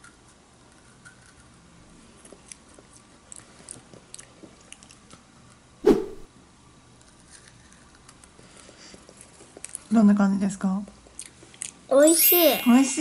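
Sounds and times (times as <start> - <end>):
child chewing crunchy cookie: 0.0 - 5.6, 7.0 - 9.9, 11.0 - 11.8.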